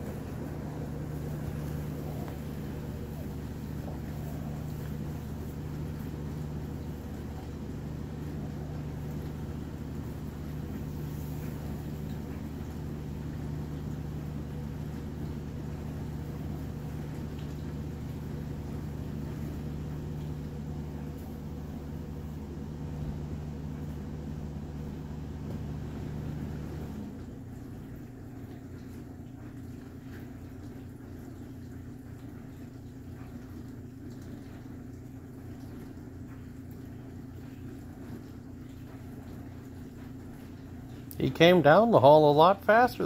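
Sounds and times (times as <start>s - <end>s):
machine motor humming: 0.0s - 28.0s.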